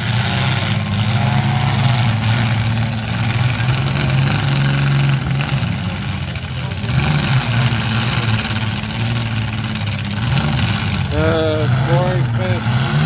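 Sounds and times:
car engines running hard: 0.0 - 13.0.

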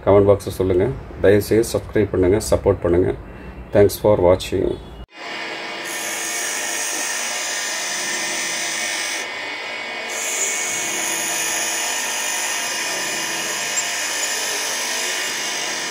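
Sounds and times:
angle grinder cutting metal: 5.1 - 15.9.

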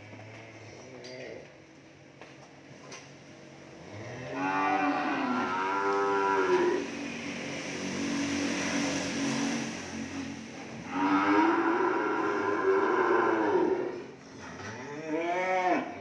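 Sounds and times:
cattle mooing: 3.9 - 6.9, 10.8 - 16.0.

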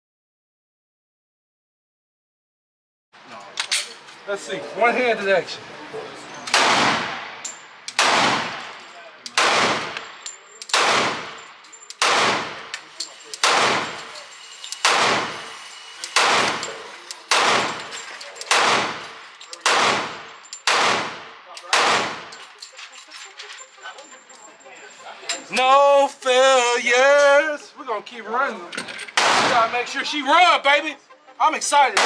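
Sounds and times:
pistol shots echoing: 6.5 - 14.1, 14.8 - 22.4, 29.2 - 29.9.

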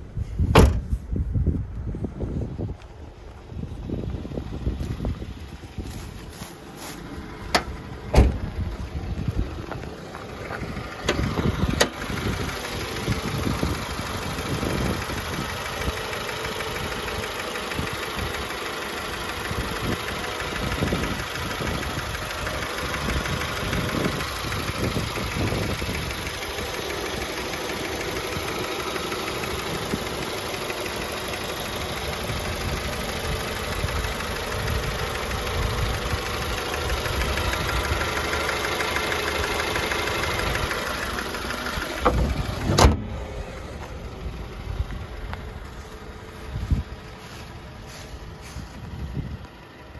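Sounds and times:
car engine idling: 0.0 - 49.9.

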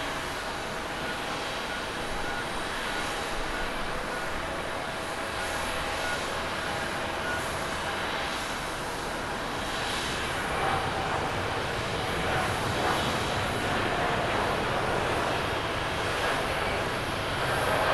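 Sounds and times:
jet engines running: 0.0 - 17.9.

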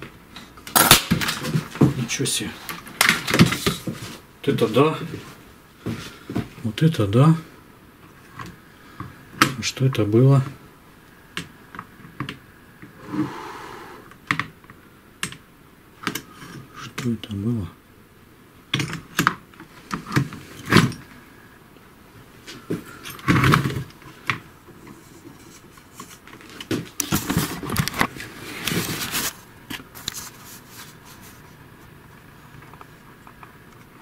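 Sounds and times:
rustling and scraping: 0.0 - 4.3, 19.6 - 21.2, 22.3 - 33.7.

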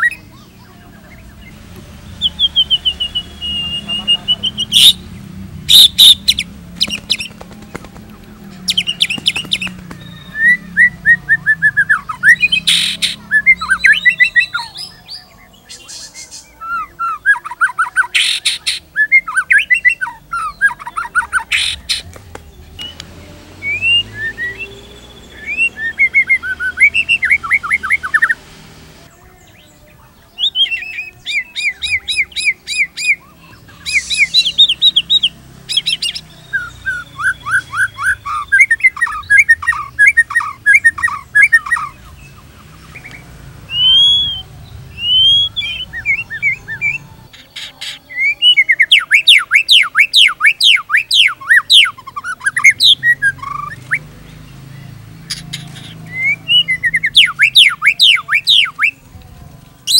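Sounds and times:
songbird singing fast note runs: 0.0 - 15.0
bird's loud clear whistles: 5.7 - 7.3, 30.4 - 41.9, 43.7 - 47.0.

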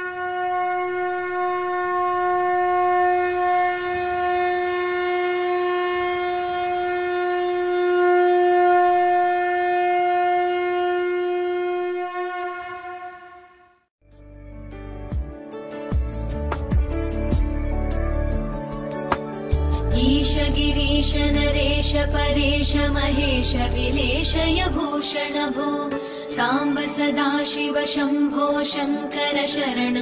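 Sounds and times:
conch shell blown: 0.0 - 13.8.

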